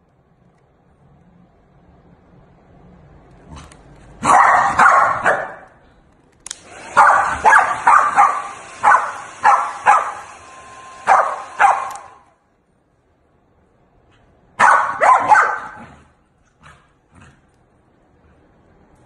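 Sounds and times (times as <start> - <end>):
dog barking: 4.2 - 5.8, 6.9 - 10.3, 11.0 - 12.2, 14.6 - 16.8
hair dryer blowing air: 6.5 - 12.3.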